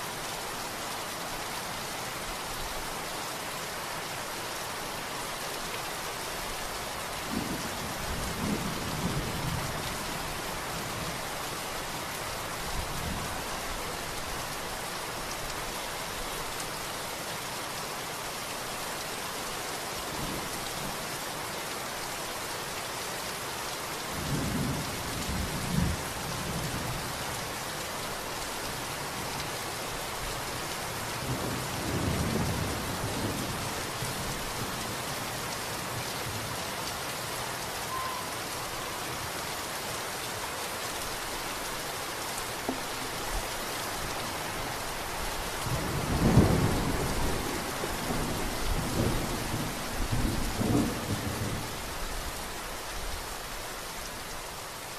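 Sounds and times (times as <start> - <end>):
steady rain: 0.0 - 54.9
low rolling thunder: 45.7 - 51.7.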